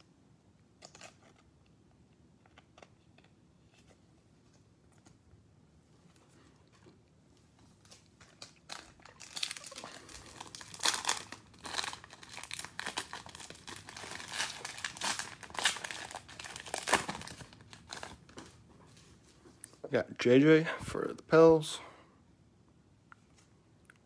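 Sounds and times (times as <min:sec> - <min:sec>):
plastic wrapper tearing and crinkling: 0:07.8 - 0:18.4.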